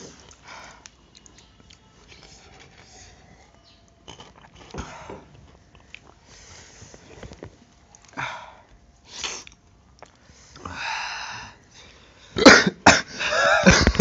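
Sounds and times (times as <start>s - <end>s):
man coughing: 12.3s - 14.0s.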